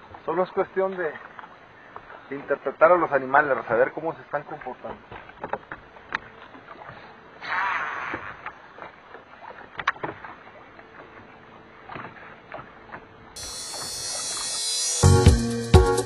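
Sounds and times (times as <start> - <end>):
water lapping at boat hull: 0.0 - 14.5
music: 13.4 - 16.0
steady hiss: 13.4 - 16.0.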